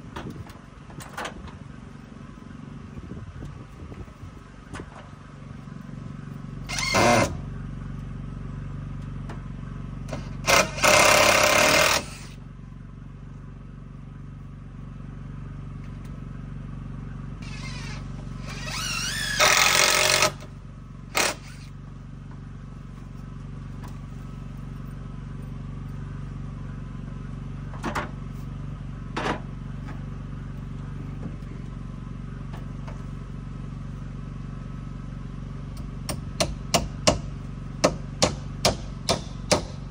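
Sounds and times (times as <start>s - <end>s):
steady low hum: 0.0s - 39.9s
impact driver driving screws: 10.1s - 12.4s, 17.4s - 20.5s, 21.2s - 21.7s.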